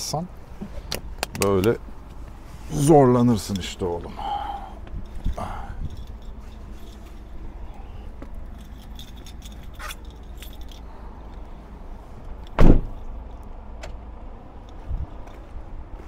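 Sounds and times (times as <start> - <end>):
low steady rumble: 0.0 - 16.0
camera rig clicks and rattling: 8.2 - 10.9
loud thump: 12.6 - 13.0.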